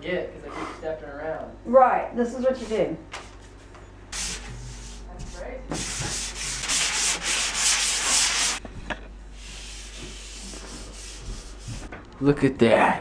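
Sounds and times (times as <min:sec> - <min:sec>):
hands scraping a wall: 0:02.6 - 0:08.6, 0:09.4 - 0:11.9.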